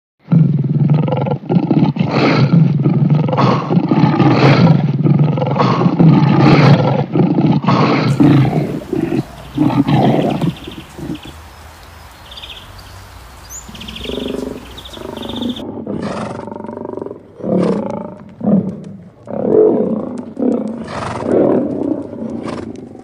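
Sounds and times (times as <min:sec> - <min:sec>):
lions roaring: 0:00.9 - 0:23.0.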